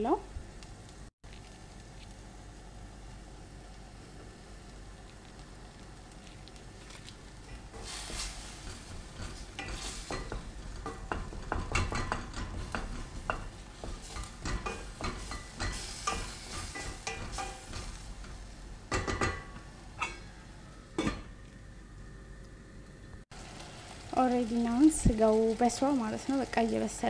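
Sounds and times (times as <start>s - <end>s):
meat sizzling: 1.4s - 20.1s, 23.3s - 27.0s
wooden spoon scraping pot: 6.3s - 18.5s.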